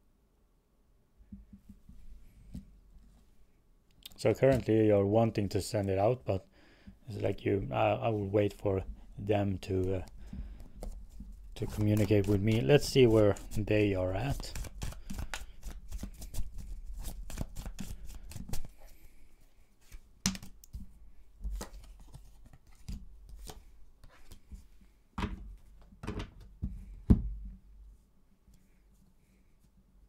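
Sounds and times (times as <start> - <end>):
cards being shuffled: 9.8 - 19.0, 19.8 - 24.6.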